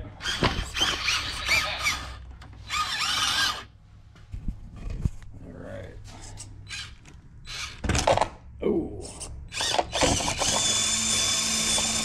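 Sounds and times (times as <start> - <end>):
small electric motor whining: 0.2 - 3.7, 9.5 - 12.0.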